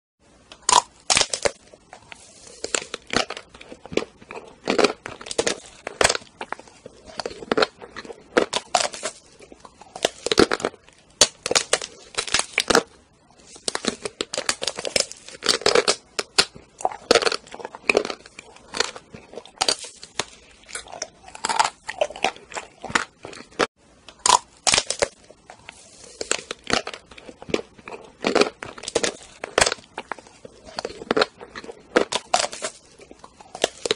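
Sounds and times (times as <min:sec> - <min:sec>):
chocolate shell crunching: 0:00.5 - 0:33.9
chewing: 0:25.1 - 0:33.9.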